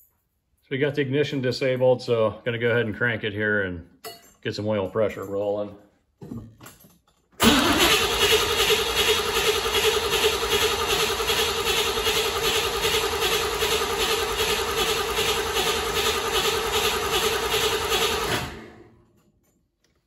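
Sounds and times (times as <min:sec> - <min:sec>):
starter cranking engine: 0:07.4 - 0:18.8.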